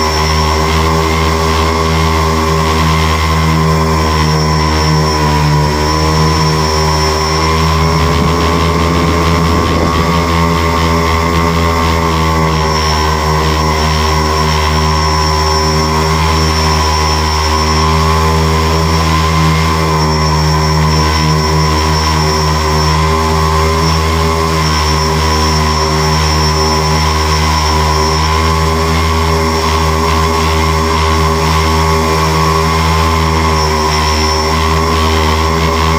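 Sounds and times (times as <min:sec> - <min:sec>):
drone motors and propellers humming: 0:00.0 - 0:35.9
faint high whine: 0:00.0 - 0:35.9.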